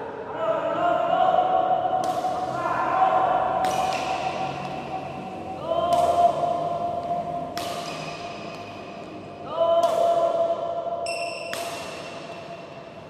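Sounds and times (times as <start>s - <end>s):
racket hitting shuttlecock: 1.9s - 2.6s, 3.4s - 13.0s.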